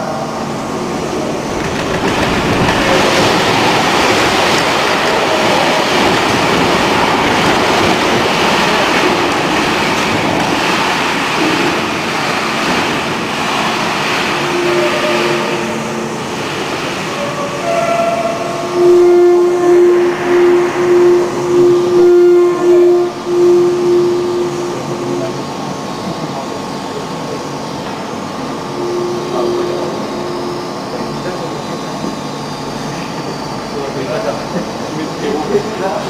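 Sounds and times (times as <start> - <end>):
shake table rumbling clatter: 1.5 - 11.7.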